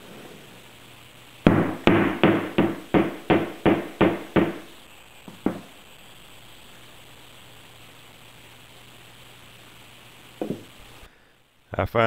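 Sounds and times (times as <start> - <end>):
sharp knocks on wood: 1.5 - 4.6, 5.3 - 5.7, 10.4 - 10.6.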